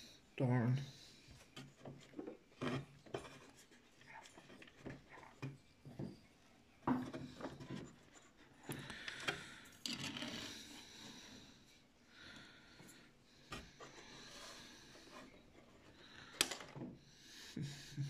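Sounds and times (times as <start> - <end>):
plastic parts clicking and knocking: 6.8 - 10.5, 16.3 - 17.0.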